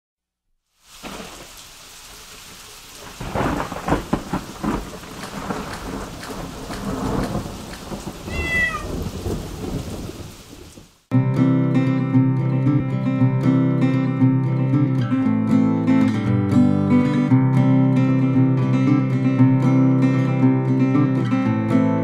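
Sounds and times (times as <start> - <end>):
rain falling: 0.7 - 11.1
thunder rumbling: 1.0 - 11.0
cat meowing: 8.3 - 9.0.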